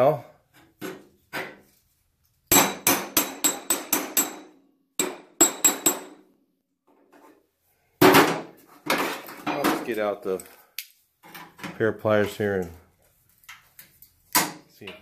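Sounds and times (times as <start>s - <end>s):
hammer striking chisel on metal: 2.5s - 6.3s.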